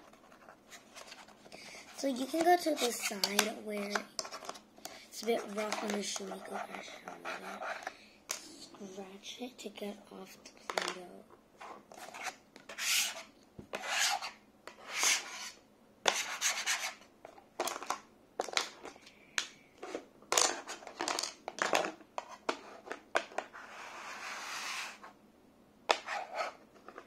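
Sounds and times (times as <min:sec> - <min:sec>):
play dough scraped off desk: 0:23.5 - 0:25.1.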